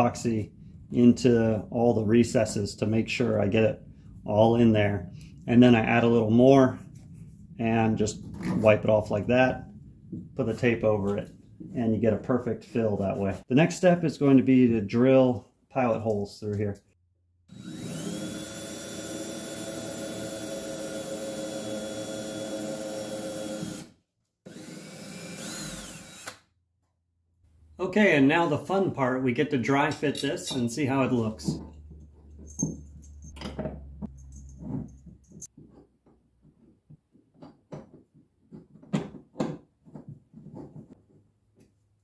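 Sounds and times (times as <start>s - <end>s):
cordless drill boring: 17.5s - 23.9s, 24.5s - 26.5s
metal hardware clicking and knocking: 29.9s - 30.9s, 31.5s - 35.6s.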